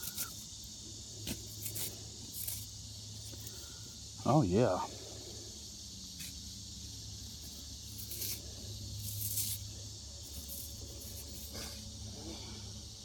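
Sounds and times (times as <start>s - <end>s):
thumb rubbing stone blade: 0.0s - 0.4s, 7.4s - 8.4s, 9.0s - 11.8s
steady high hiss: 0.0s - 13.0s.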